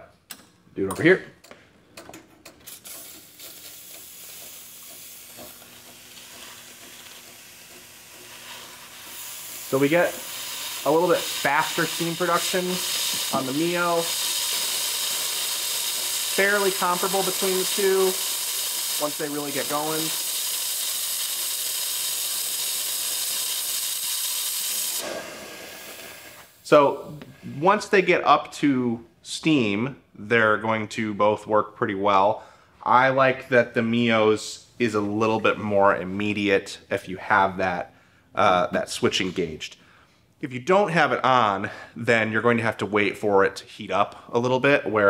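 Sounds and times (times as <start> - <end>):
steam wand spitting and sputtering: 2.7 - 26.6
steam wand hissing: 2.7 - 26.7.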